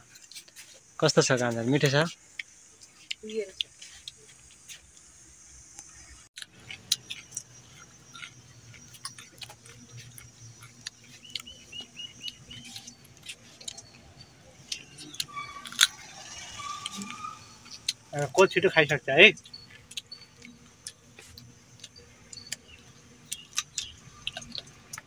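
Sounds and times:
high chirps: 5.8s - 25.0s
carrot crunching: 6.4s - 18.5s, 19.3s - 25.0s.

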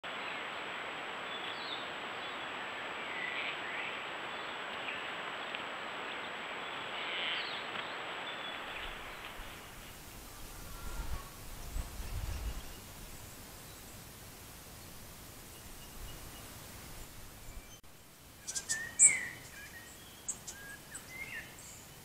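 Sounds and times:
steady hiss: 0.1s - 22.0s
faint bird calls: 1.4s - 13.2s.

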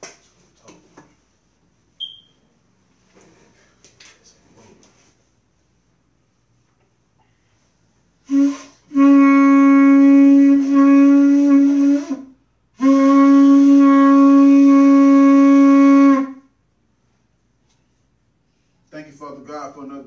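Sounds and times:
shofar blasts: 8.2s - 16.5s.

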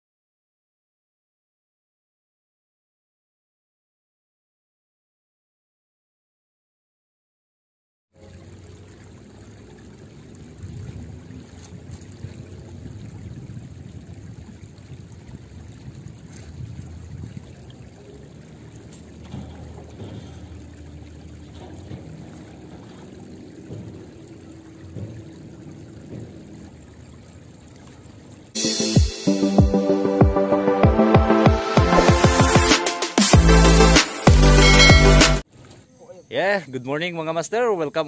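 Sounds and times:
river water rushing: 15.7s - 28.6s
faint soft knocks: 18.8s - 27.1s
loud electronic music: 28.6s - 35.4s.

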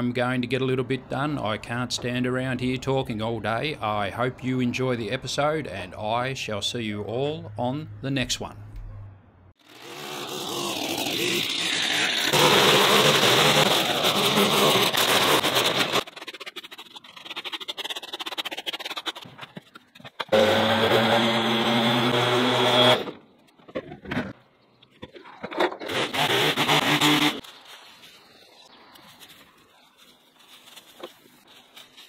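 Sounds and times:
power tool motor running: 9.6s - 16.0s, 20.3s - 23.2s, 25.9s - 27.4s.

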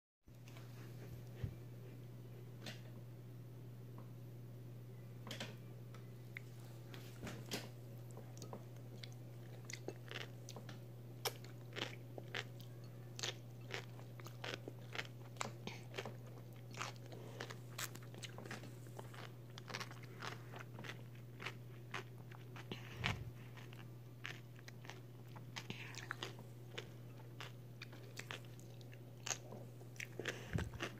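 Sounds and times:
steady low hum: 0.3s - 30.9s
crunching and chewing cucumber: 7.5s - 30.9s.

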